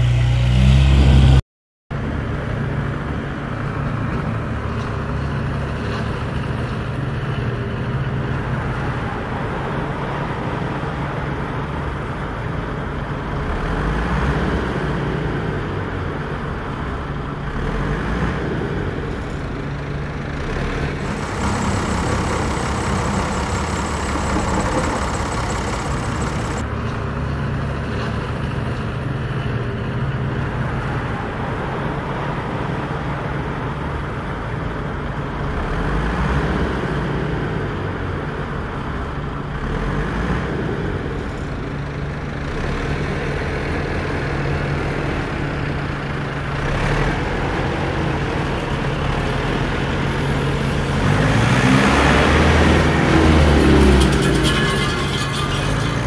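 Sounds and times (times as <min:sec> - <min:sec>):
engine droning: 0:15.5 - 0:28.4, 0:44.6 - 0:56.0.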